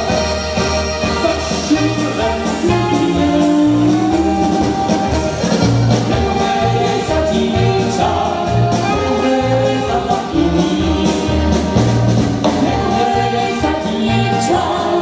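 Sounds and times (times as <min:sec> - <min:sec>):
accordion: 0:00.0 - 0:15.0
woman and man singing together: 0:06.1 - 0:11.8, 0:12.4 - 0:15.0.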